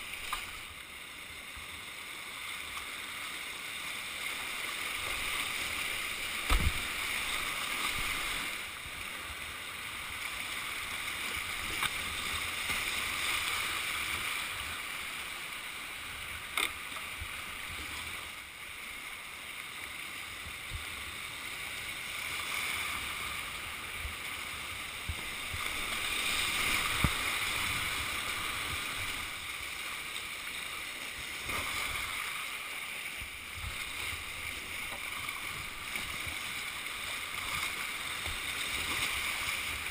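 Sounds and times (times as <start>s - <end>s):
whitewater rapids rushing: 1.8s - 19.4s, 20.2s - 39.9s
sharp knocks on kayak: 6.4s - 7.0s.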